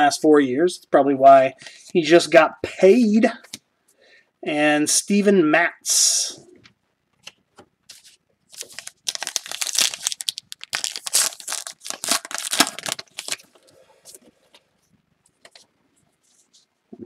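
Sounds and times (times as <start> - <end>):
wrapper tearing and crinkling: 8.5 - 13.5.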